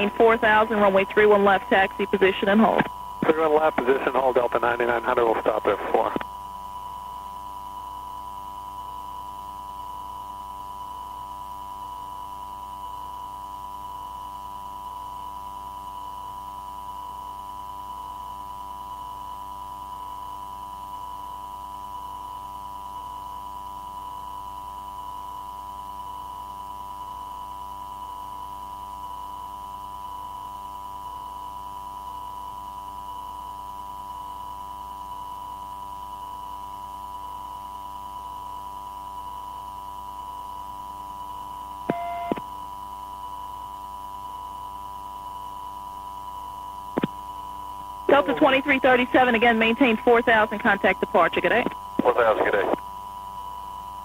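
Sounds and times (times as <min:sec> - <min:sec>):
steady electronic tone: 0:41.9 - 0:42.4.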